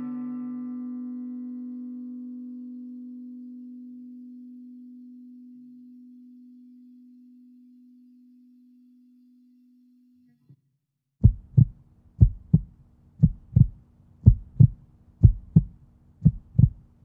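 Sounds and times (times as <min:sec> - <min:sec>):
heartbeat-like low thumps: 0:11.2 - 0:16.9
steady low hum: 0:11.2 - 0:17.0.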